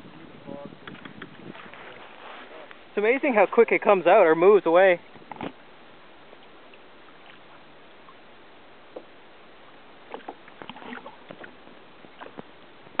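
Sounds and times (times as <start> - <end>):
water lapping against kayak hull: 0.0 - 13.0
small knocks and splashes: 10.0 - 13.0.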